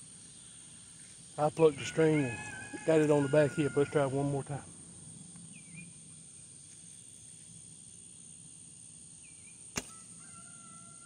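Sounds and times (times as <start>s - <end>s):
bowstring snapping: 9.8s - 10.0s.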